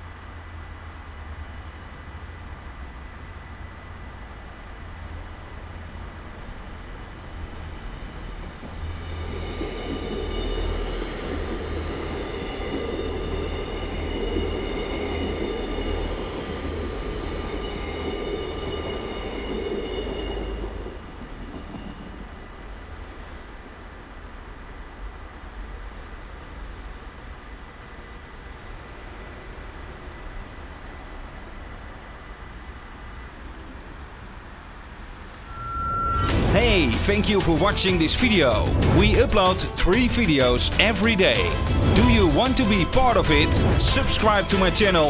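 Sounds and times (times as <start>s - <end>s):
train rumbling past: 0.0s - 45.0s
high whining tones: 35.3s - 39.0s
crossing bells ringing: 35.4s - 45.0s.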